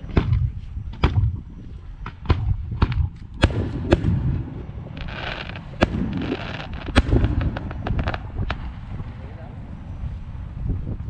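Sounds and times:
low rumble: 0:00.0 - 0:11.0
firework shells bursting: 0:02.9 - 0:08.8.

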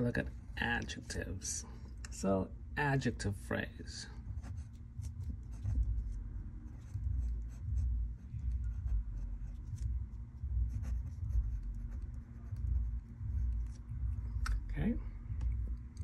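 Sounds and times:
pen scratching while writing: 0:04.4 - 0:14.0.

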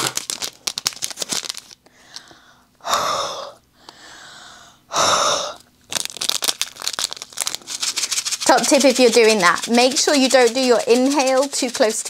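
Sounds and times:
beads rattling in a bag: 0:00.0 - 0:01.8, 0:05.9 - 0:12.0
soft inhale: 0:01.9 - 0:05.6.

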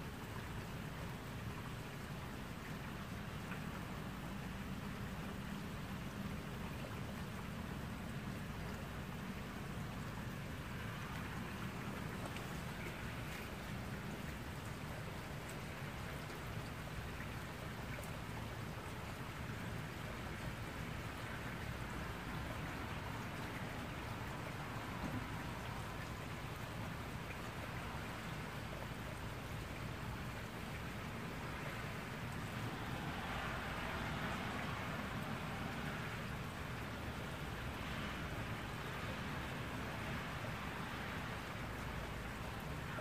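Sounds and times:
rain on wet pavement: 0:00.0 - 0:43.0.

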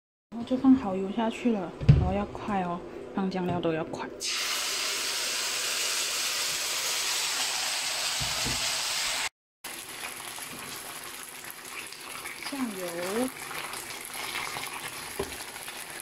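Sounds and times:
sauce sizzling in hot oil: 0:04.2 - 0:16.0.

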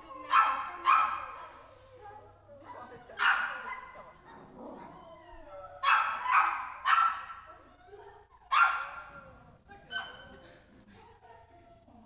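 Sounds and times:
dog barking: 0:00.3 - 0:01.6, 0:03.2 - 0:04.4, 0:05.8 - 0:07.4, 0:08.5 - 0:09.1.

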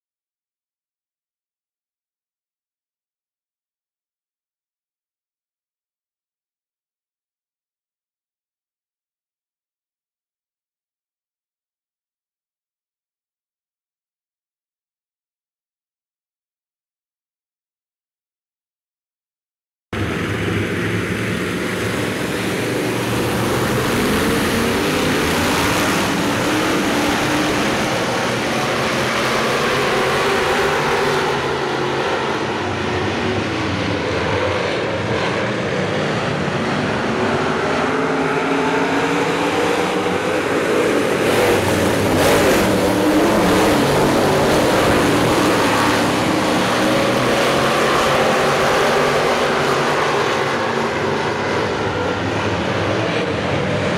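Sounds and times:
race car engines: 0:20.0 - 0:53.9.

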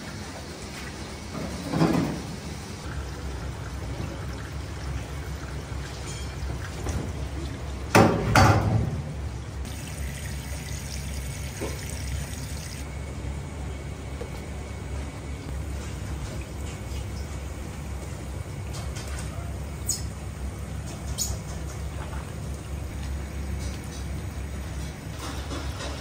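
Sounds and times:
steady low hum: 0:08.9 - 0:26.0
hot water pouring and splashing: 0:09.6 - 0:12.9.

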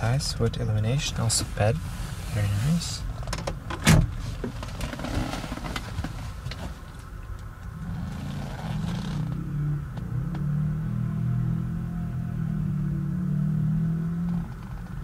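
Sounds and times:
car engine humming: 0:00.0 - 0:15.0
handling clicks and rustles: 0:00.3 - 0:09.4.

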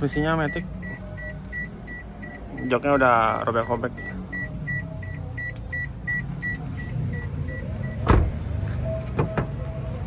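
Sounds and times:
car door warning chime beeping: 0:00.3 - 0:08.3
car door shutting thud: 0:08.0 - 0:08.4.

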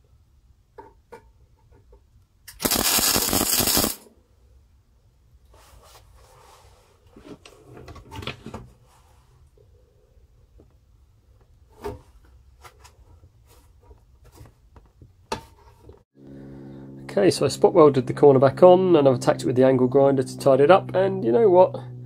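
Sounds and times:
welding arc crackling: 0:02.5 - 0:04.0.

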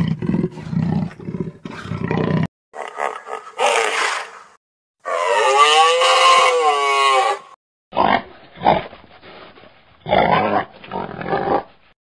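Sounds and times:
animal's long call: 0:05.0 - 0:07.6.

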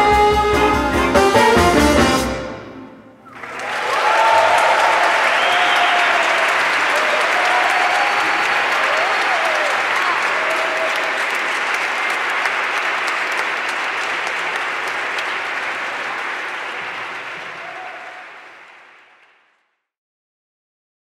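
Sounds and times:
audience applauding: 0:03.2 - 0:19.6.

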